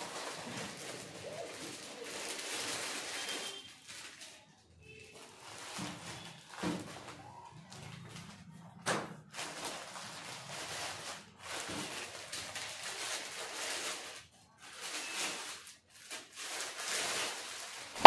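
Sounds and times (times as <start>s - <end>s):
plastic packaging crinkling: 0.0s - 8.6s, 9.2s - 18.0s.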